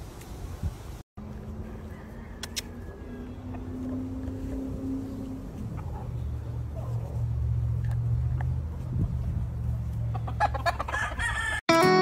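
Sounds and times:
rooster crowing: 1.5s - 3.9s, 10.4s - 11.6s.

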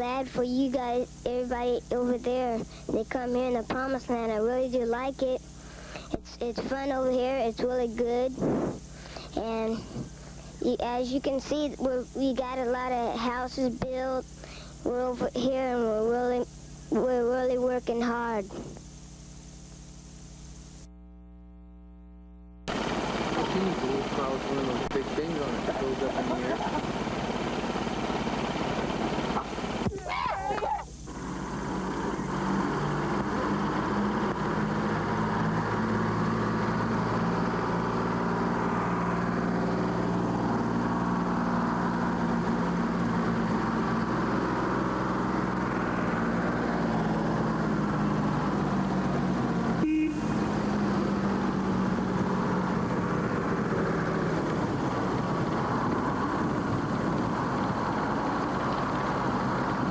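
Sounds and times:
engine droning: 22.7s - 59.9s.

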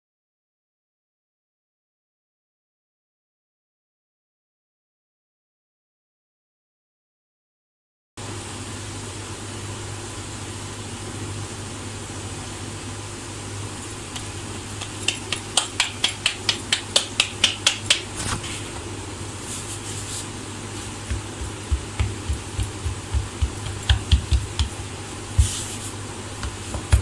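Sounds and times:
steady background hum: 8.2s - 27.0s
hands slapping dough: 14.1s - 18.5s, 20.8s - 27.0s.

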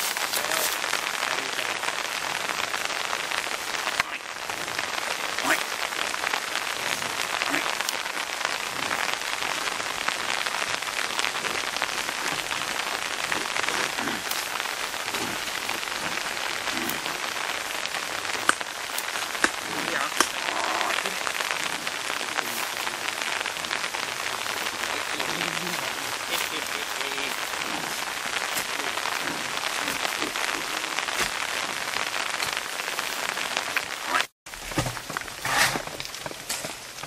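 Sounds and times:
rain on leaves and ground: 0.0s - 37.0s.

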